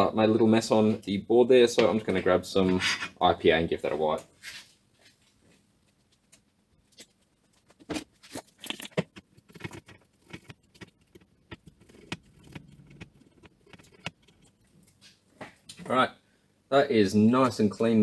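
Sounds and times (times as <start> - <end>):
cloth rubbing circuit board: 7.0 - 15.3.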